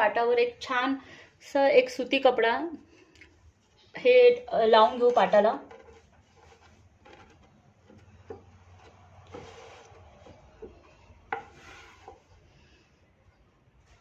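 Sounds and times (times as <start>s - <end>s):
fabric rubbing on wood: 5.3s - 8.1s, 8.7s - 10.6s, 11.4s - 12.3s.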